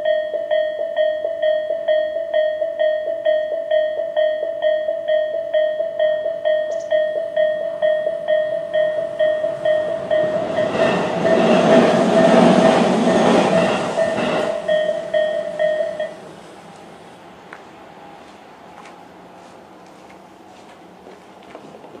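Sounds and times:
level crossing bell ringing: 0.0s - 16.2s
electric train passing: 0.0s - 22.0s.

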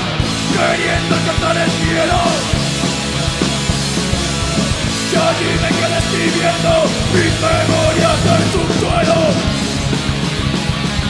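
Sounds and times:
heavy metal band playing: 0.0s - 11.0s
man singing: 0.5s - 2.6s, 4.0s - 9.6s.

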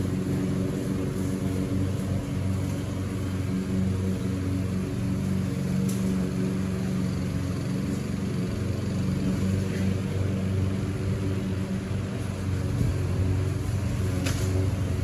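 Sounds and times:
lawn mower engine running: 0.0s - 15.0s.

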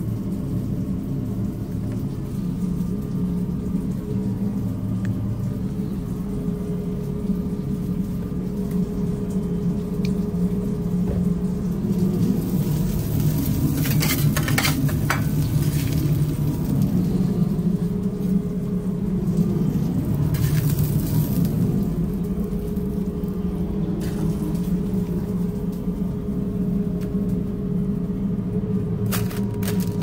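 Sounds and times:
steady low hum: 0.0s - 30.0s
burger patties sizzling on a griddle: 11.9s - 16.8s, 20.2s - 22.2s.

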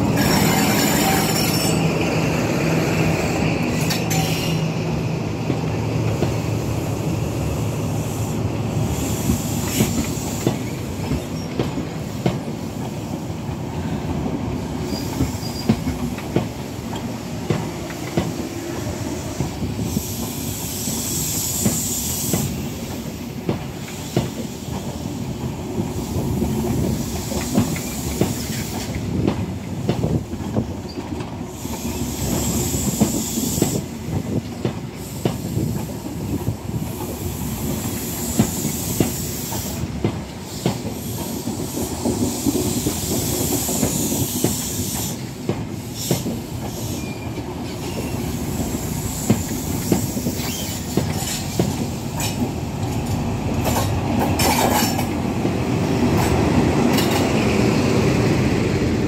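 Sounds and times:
high hiss from train wheels: 0.0s - 59.0s
train wheels rumbling over rail joints: 0.0s - 59.0s.

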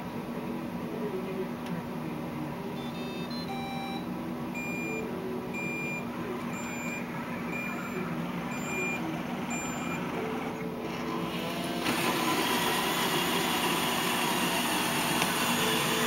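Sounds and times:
steady low hum: 0.0s - 11.5s
robot vacuum beeping: 2.8s - 4.0s, 5.6s - 14.2s.

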